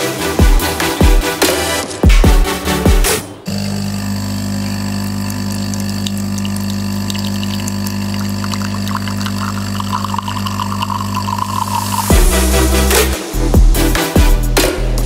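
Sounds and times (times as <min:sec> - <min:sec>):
espresso machine pump humming: 0:03.4 - 0:12.4
espresso trickling into glass: 0:03.5 - 0:12.1.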